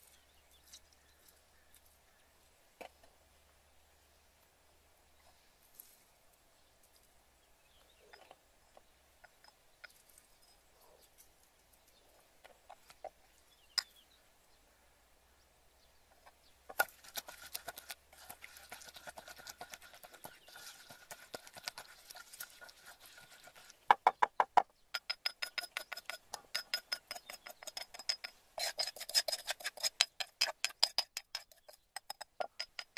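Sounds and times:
metal spoon clinking and scraping: 0:25.0 - 0:32.9.

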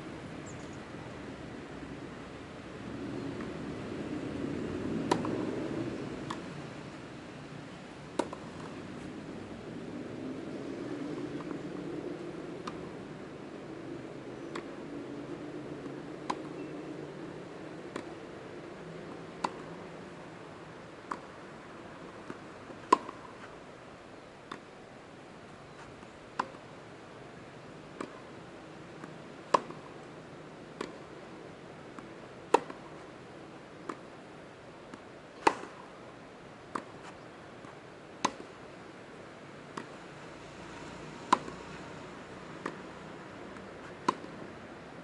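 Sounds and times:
tennis ball hit by rackets: 0:05.0 - 0:05.5, 0:08.2 - 0:08.8, 0:16.2 - 0:16.6, 0:17.8 - 0:18.2, 0:19.3 - 0:19.8, 0:21.0 - 0:21.4, 0:22.0 - 0:23.5, 0:25.8 - 0:26.7, 0:27.9 - 0:28.3, 0:29.0 - 0:30.0, 0:30.7 - 0:31.1, 0:31.9 - 0:33.0, 0:33.8 - 0:34.2, 0:34.9 - 0:36.0, 0:36.7 - 0:38.6, 0:39.7 - 0:40.0, 0:41.3 - 0:41.7, 0:42.6 - 0:42.9, 0:43.5 - 0:44.4.

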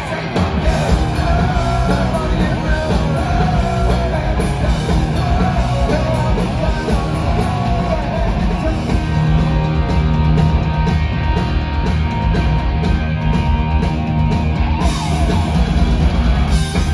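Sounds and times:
singer's vocals: 0:00.0 - 0:09.5
bass: 0:00.0 - 0:16.9
distorted electric guitars: 0:00.0 - 0:16.9
drums: 0:00.0 - 0:16.9.

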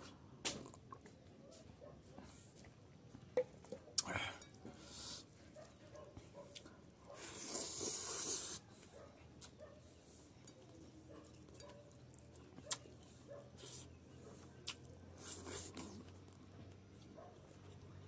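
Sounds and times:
man chewing food: 0:02.6 - 0:18.0
lip smacks: 0:11.6 - 0:12.9, 0:14.6 - 0:16.2.

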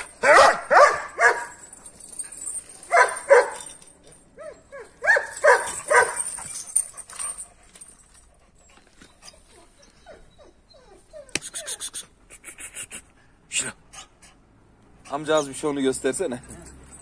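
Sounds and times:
dog yelps: 0:00.0 - 0:01.6, 0:02.8 - 0:03.7, 0:04.4 - 0:07.4
large dogs barking aggressively: 0:00.0 - 0:07.4.

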